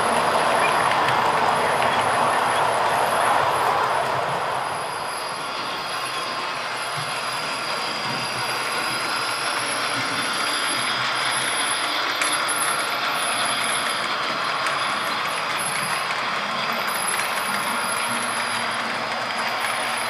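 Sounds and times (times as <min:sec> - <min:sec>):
model train hiss and rolling: 0:00.0 - 0:20.0.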